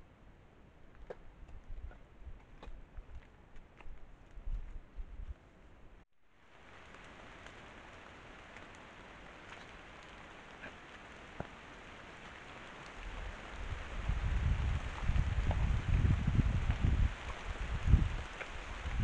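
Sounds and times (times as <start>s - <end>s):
light rain falling: 6.2s - 19.0s
rain drips: 6.3s - 19.0s.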